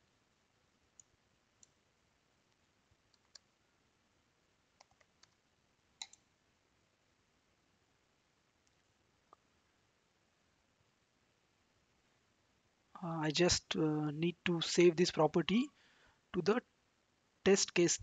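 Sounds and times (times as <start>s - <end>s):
computer keyboard typing: 4.8s - 5.4s.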